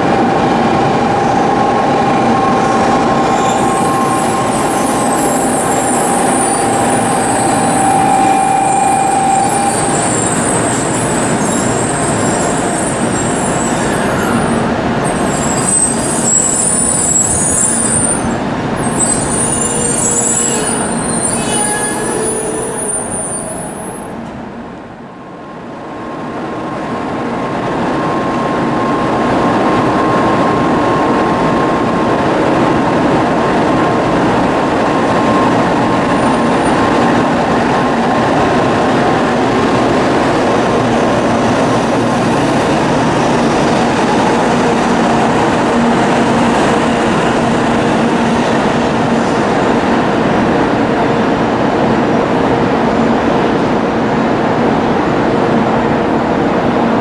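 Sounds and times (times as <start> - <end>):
train running noise: 0.0 - 57.0
thin high tone: 2.5 - 10.7.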